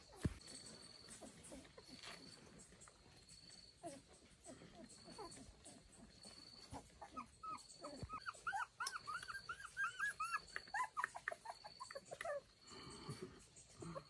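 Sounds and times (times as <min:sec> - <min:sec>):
dog whimpering: 0:03.8 - 0:14.0.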